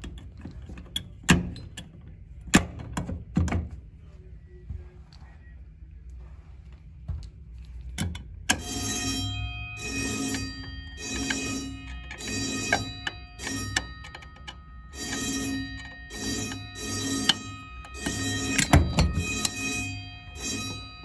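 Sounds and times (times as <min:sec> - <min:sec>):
fire alarm pull station click: 0:08.1 - 0:09.2, 0:09.8 - 0:21.0
fire bells ringing in pulses: 0:08.6 - 0:21.0.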